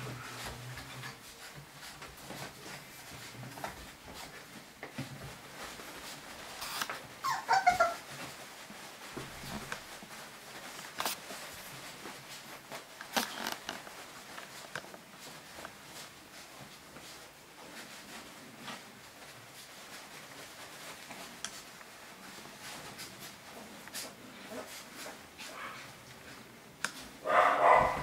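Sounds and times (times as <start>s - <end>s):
puppies rustling in paper bedding: 0.0s - 28.0s
puppy yelping: 7.2s - 8.1s, 27.3s - 28.0s.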